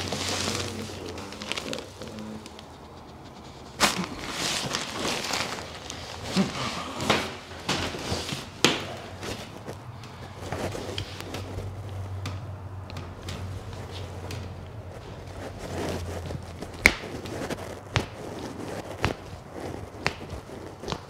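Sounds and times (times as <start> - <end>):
clothing rustling: 0.0 - 21.0
sharp joint cracks: 10.9 - 14.8, 16.2 - 21.0.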